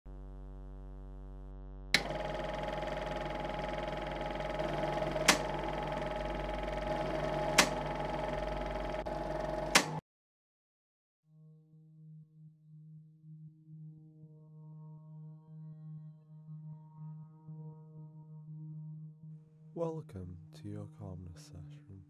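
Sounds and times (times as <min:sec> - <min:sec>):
electronic buzzing drone: 0:00.1 - 0:10.0
low hum: 0:00.1 - 0:10.0
sharp switch clicks: 0:04.8 - 0:05.6, 0:07.5 - 0:07.9, 0:09.6 - 0:10.0.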